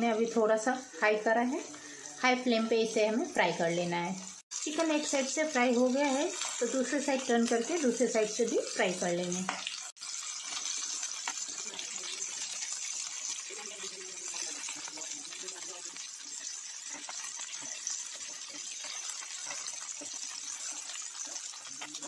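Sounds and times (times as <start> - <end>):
chicken sizzling in frying pan: 0.0 - 22.0
metal spoon scraping pan: 16.2 - 22.0.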